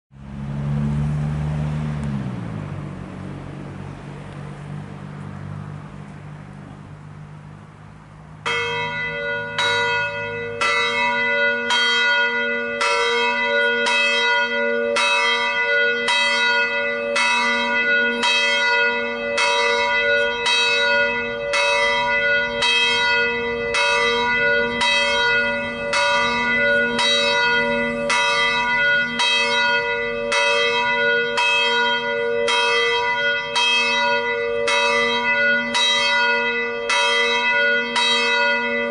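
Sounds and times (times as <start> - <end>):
low vehicle hum: 0.1 - 35.9
church bell tolling: 8.4 - 38.9.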